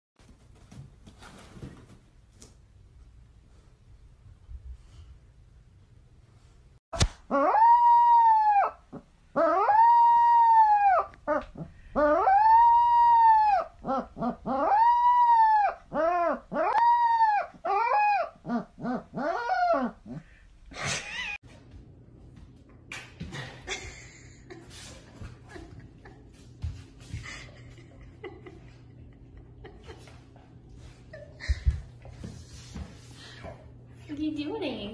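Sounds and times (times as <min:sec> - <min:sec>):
puppy howling: 0:07.3 - 0:20.2.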